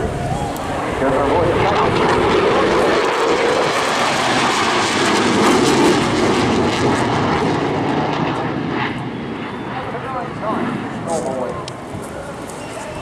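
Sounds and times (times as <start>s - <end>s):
jet engine noise: 0.0s - 13.0s.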